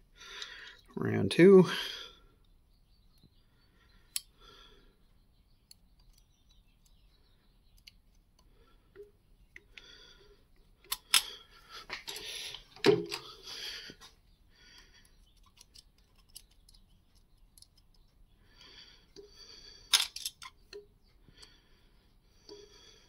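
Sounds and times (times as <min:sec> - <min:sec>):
metal parts clattering: 0:19.9 - 0:20.5.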